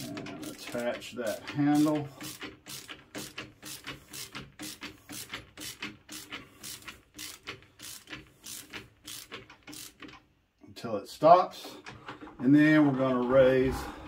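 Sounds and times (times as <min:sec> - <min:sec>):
ratcheting screwdriver clicking: 0:00.0 - 0:10.3.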